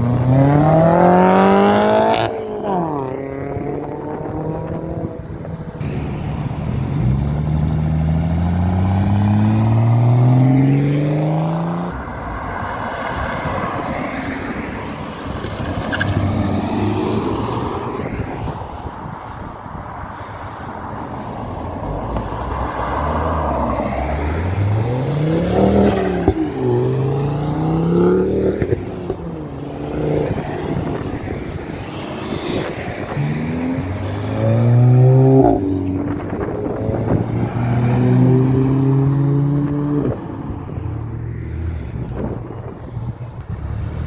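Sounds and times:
car engine accelerating hard: 22.9s - 40.4s.

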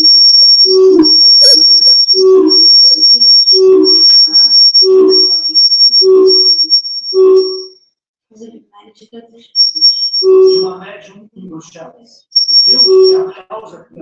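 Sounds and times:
high whistling tone: 0.0s - 7.8s, 9.6s - 10.7s, 12.4s - 13.3s.

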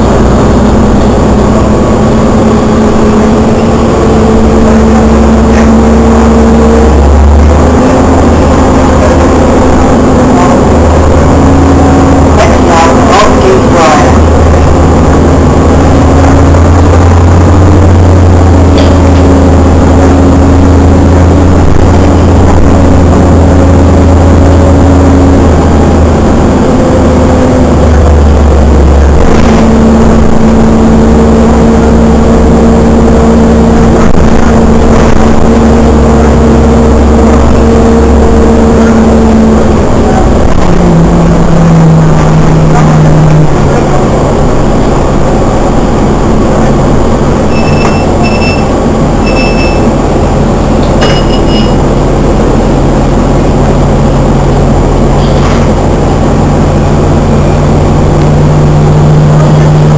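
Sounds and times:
engine and road noise inside vehicle: 0.0s - 59.9s.

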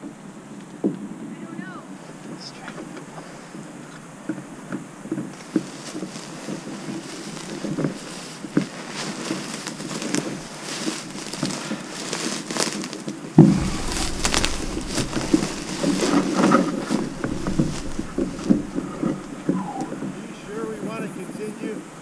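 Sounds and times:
canoe hull clicks and creaks: 2.7s - 21.0s
footsteps through grass: 5.3s - 20.8s
sudden bump: 13.4s - 21.0s
low rumble: 13.4s - 21.2s.

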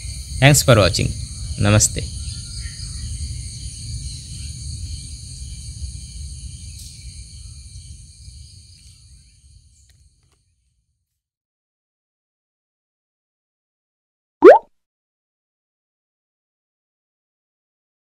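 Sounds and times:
insects chirping: 0.0s - 10.3s.

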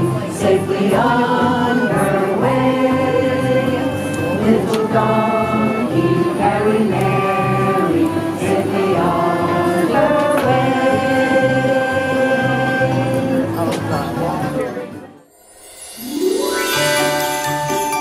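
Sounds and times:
group singing a carol: 0.0s - 13.6s.

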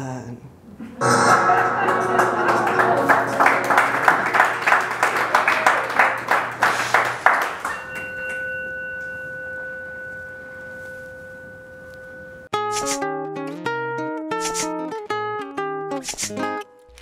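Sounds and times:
audience applauding: 1.0s - 8.0s
steady ringing tone: 7.6s - 12.5s.

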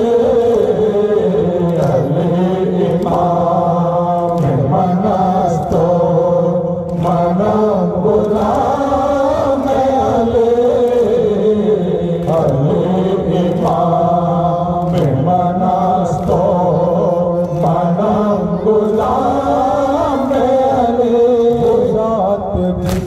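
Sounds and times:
men chanting in unison: 0.0s - 23.0s.

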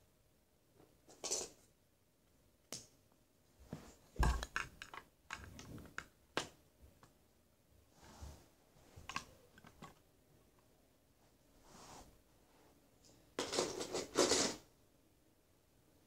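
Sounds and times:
plastic bricks clicking: 4.2s - 6.5s.

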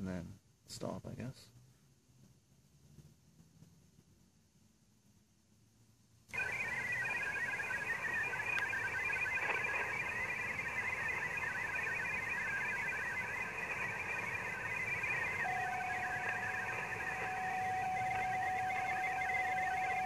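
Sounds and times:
radio receiver hiss: 6.3s - 20.0s.

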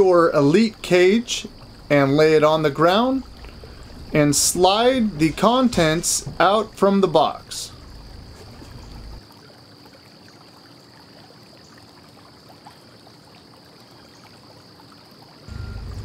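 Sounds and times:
background hiss: 0.0s - 9.2s, 13.9s - 16.0s
faint ticks: 3.3s - 4.1s
high steady whine: 15.5s - 16.0s.

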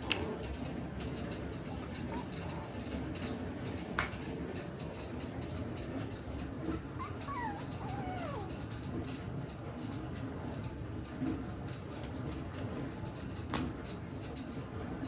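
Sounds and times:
dog whimpering: 6.6s - 8.8s.

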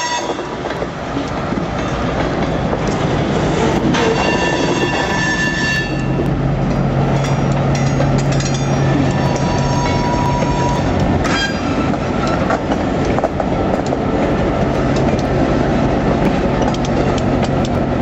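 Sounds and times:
diesel locomotive engine drone: 0.0s - 18.0s
steel wheel squeal: 3.5s - 6.3s, 7.2s - 12.5s.

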